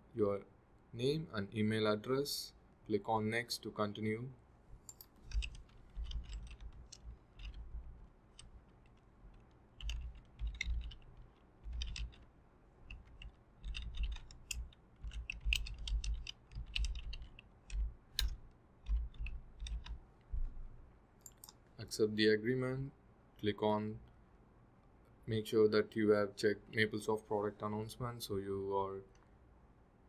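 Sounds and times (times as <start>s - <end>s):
typing on computer keyboard: 4.9s - 20.6s.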